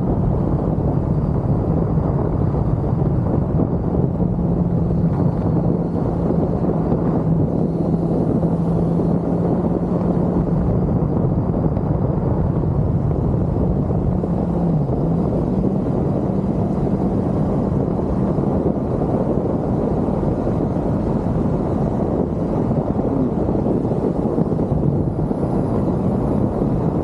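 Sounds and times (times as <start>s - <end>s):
motorcycle engine running: 0.0s - 27.0s
wind rush: 0.0s - 27.0s.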